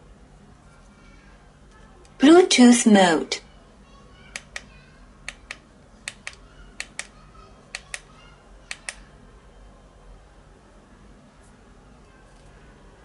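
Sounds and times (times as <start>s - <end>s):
push-button switch clicking: 5.3s - 7.1s, 8.7s - 9.0s.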